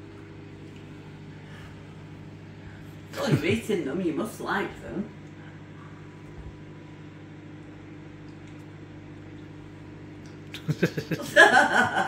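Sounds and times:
microwave oven humming: 0.0s - 12.0s
voices: 3.1s - 5.2s
people laughing: 10.6s - 12.0s.

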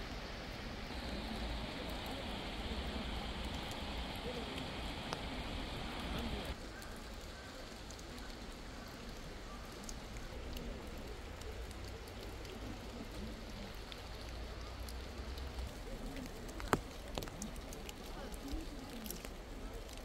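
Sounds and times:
light rain hiss: 0.0s - 20.0s
raindrops ticking: 0.8s - 20.0s.

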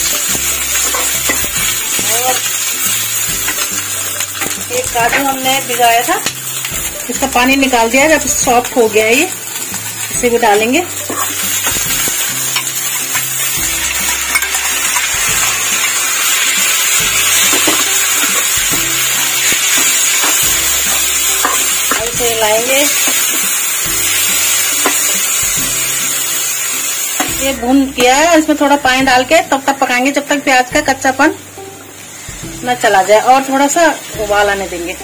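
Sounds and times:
food sizzling in hot oil: 0.0s - 35.0s
spatula scraping a pan: 10.5s - 13.4s.

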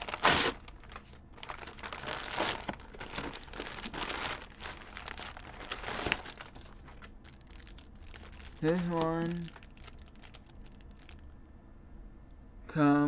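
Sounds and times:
paper mailer crinkling: 0.0s - 11.2s
plastic wrap crackling: 0.0s - 11.2s.

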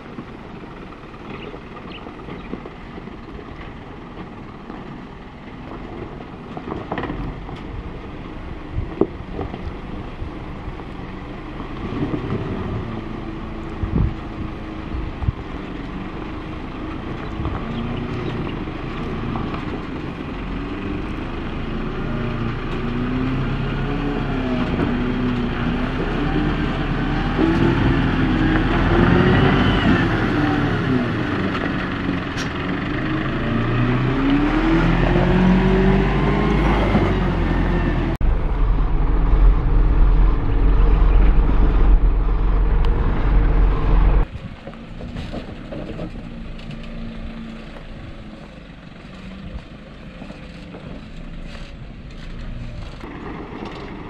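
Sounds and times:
diesel truck engine running: 0.0s - 54.0s.

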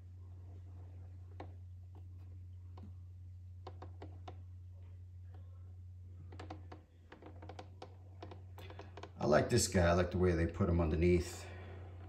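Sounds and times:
steady low hum: 0.0s - 12.0s
faint clicks and light taps: 1.3s - 5.6s.

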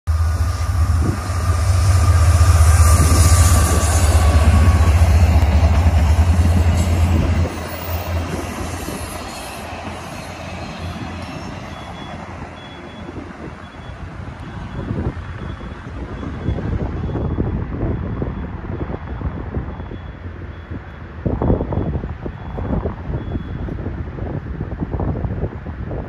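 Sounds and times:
diesel train passing: 0.1s - 25.8s
passenger cars rolling by: 0.1s - 26.0s.

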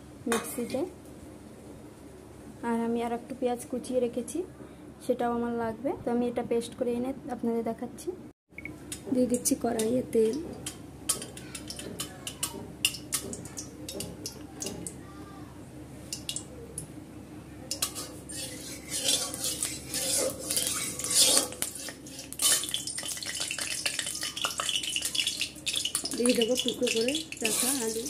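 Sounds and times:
spatula scraping metal pan: 17.7s - 26.0s, 26.6s - 28.0s.

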